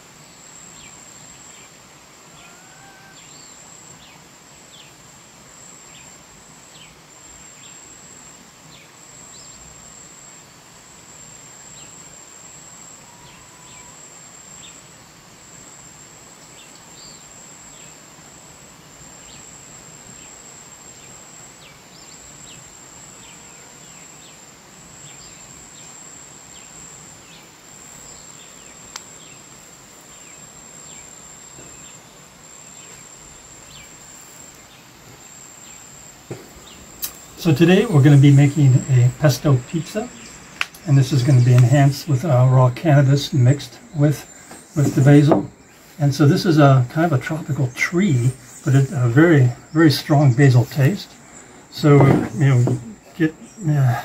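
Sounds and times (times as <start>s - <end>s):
high-pitched insect trill: 0.0s - 54.0s
sharp click: 37.0s - 37.2s.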